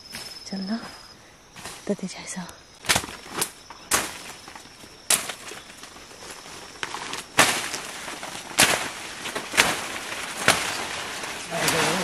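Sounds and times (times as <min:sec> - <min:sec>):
leaves and brush rustling: 0:00.0 - 0:12.0
twigs snapping underfoot: 0:02.8 - 0:12.0.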